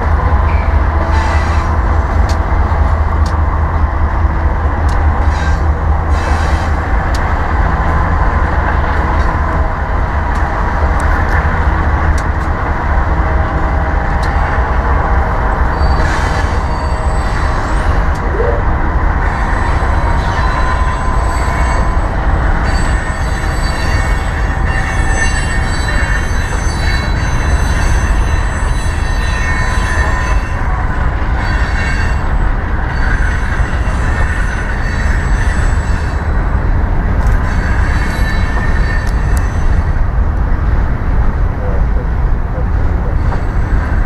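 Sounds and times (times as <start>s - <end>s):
diesel locomotives rumbling: 0.0s - 44.0s
high-pitched whines: 14.0s - 30.6s.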